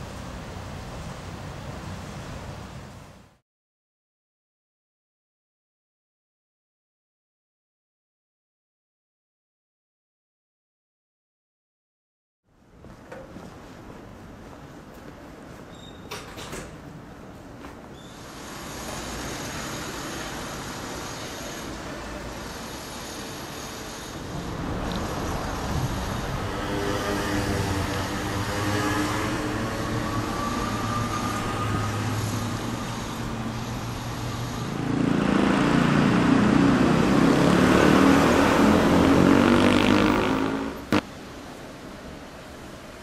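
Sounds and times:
vehicles passing close by: 18.2s - 41.1s
engine rising in pitch: 24.4s - 41.0s.

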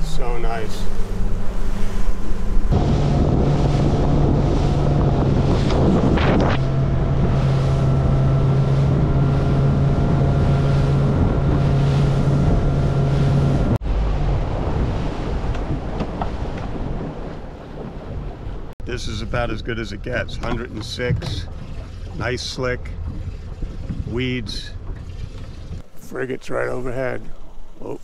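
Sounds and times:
wind buffeting microphone: 0.0s - 18.8s, 19.4s - 26.0s
outboard engine running: 0.0s - 28.0s
water rushing along hull: 0.0s - 28.0s.

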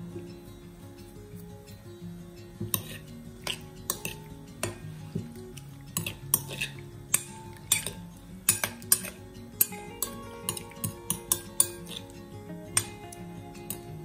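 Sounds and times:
soft background music: 0.0s - 14.0s
metal spoon clinking glass bowl: 2.6s - 4.8s, 5.9s - 12.2s, 12.8s - 13.0s.

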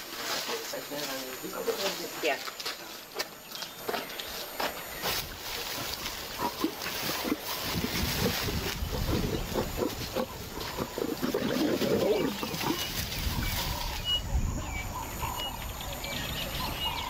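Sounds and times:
lions growling and snarling: 5.4s - 15.8s.

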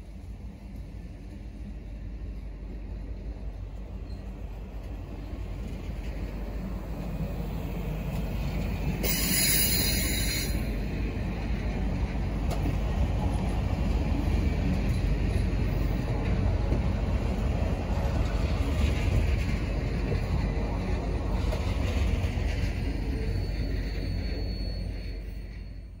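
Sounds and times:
train wheels rumbling on rails: 0.0s - 26.0s
high wheel squeal: 8.9s - 10.9s, 21.7s - 26.0s.

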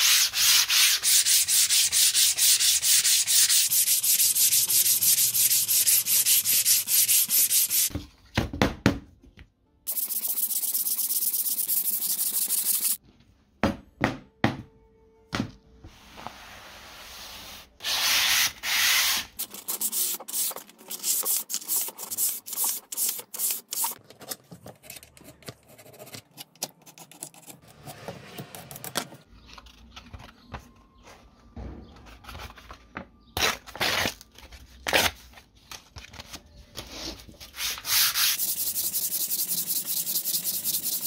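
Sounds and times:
sandpaper scrubbing plastic: 0.0s - 7.9s, 9.9s - 13.0s, 37.6s - 41.0s.

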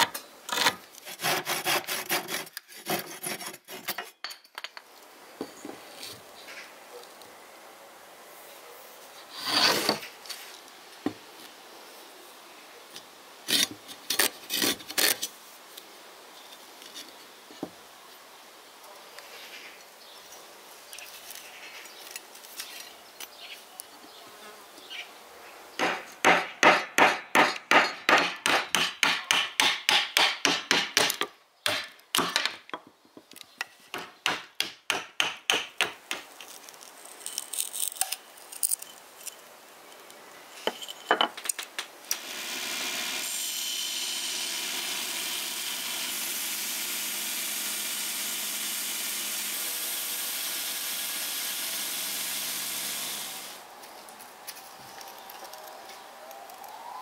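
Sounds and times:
power tool running: 42.1s - 53.6s.

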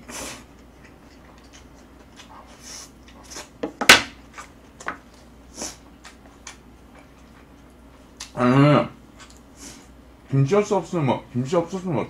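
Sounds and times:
chewing noodles with mouth smacks: 0.3s - 3.6s.

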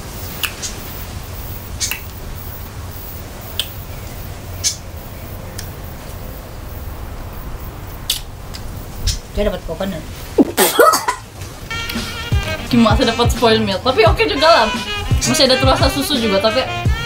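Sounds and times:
steady low rumble: 0.9s - 10.7s.

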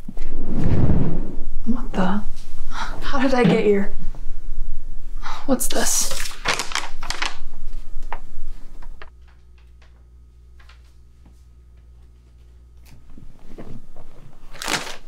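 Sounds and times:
low steady room hum: 0.0s - 15.0s
paper rustling: 5.9s - 10.0s, 12.2s - 15.0s.

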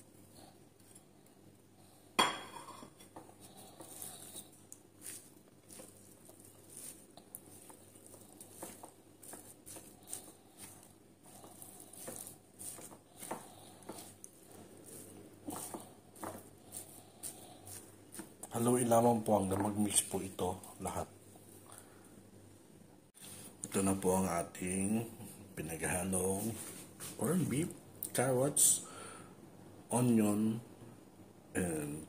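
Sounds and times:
spatula scraping in bowl: 3.8s - 18.8s.

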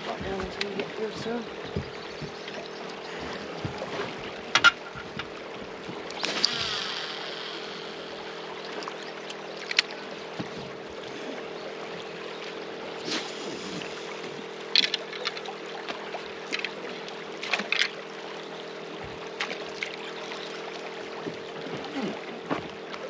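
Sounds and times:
steady low hum: 0.0s - 22.4s
rod cast whoosh: 6.1s - 8.9s
fishing reel clicks: 6.1s - 10.0s.

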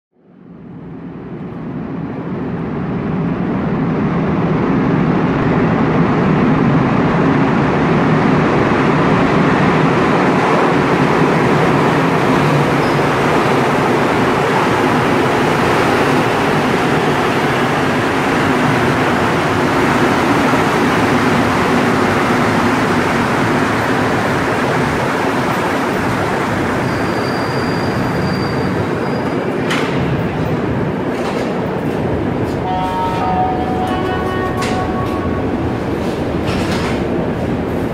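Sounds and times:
train rumbling and hissing past: 0.4s - 37.9s
brief high tone: 32.6s - 35.8s.

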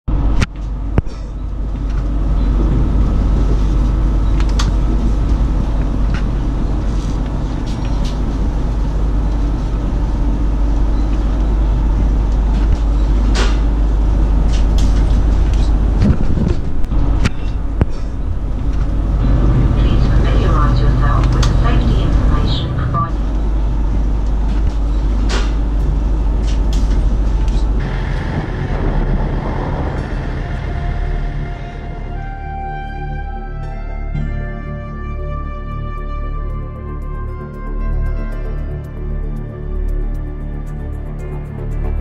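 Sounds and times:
train rumbling inside carriage: 0.0s - 42.0s
train knocks and rattles: 0.1s - 32.3s.

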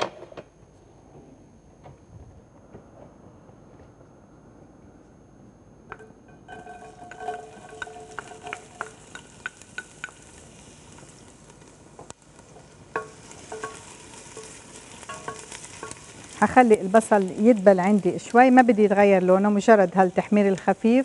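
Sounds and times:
onion sizzling in hot oil: 6.4s - 21.0s
wooden spoon knocking on pot: 13.0s - 16.1s.

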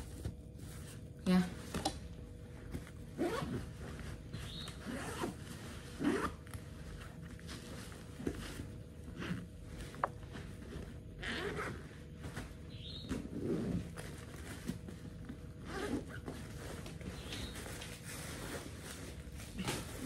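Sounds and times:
zipper pulled back and forth: 3.1s - 3.7s, 4.8s - 6.5s, 9.1s - 9.5s, 11.2s - 11.8s, 13.3s - 13.9s, 15.6s - 16.3s.

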